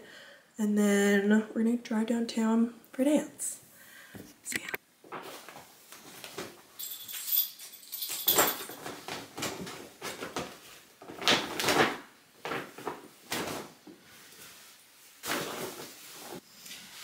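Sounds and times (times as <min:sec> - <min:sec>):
clothes and bag rustling: 0:05.0 - 0:17.0.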